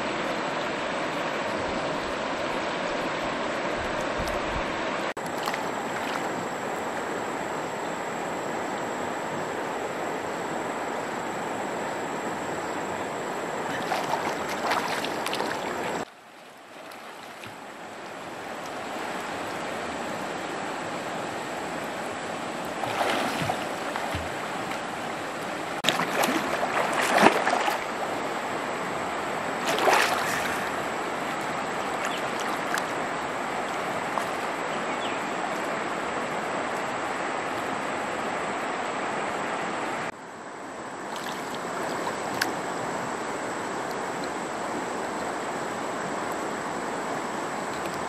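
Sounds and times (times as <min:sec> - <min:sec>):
stream water rushing: 0:00.0 - 0:48.0
swimmer splashing: 0:05.0 - 0:07.5, 0:12.6 - 0:35.0, 0:41.1 - 0:42.6.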